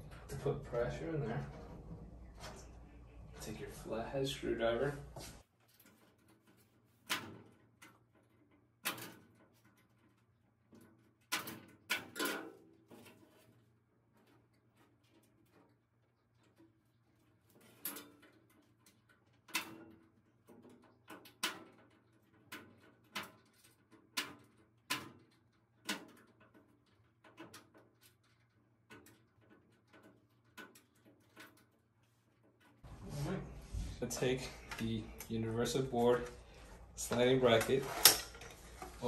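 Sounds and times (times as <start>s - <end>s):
screwdriver clicks and metal taps: 37.1s - 38.8s.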